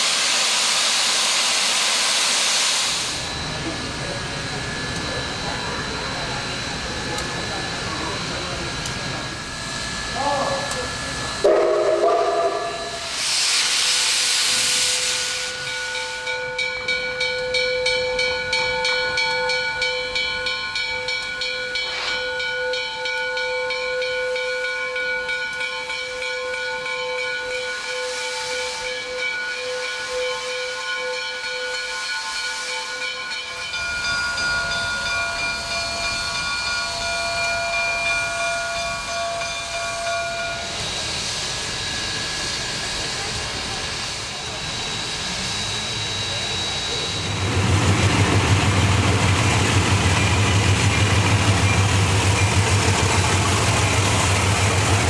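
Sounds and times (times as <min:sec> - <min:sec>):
steam hissing: 0:00.0 - 0:17.2, 0:26.0 - 0:55.0
steady ringing tones: 0:03.1 - 0:13.1, 0:29.0 - 0:55.0.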